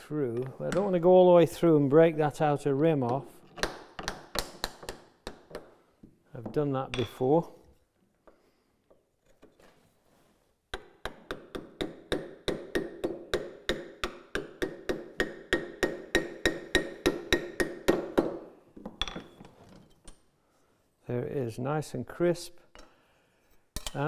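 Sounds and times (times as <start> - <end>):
hammer striking chisel into wood: 10.7 - 18.5.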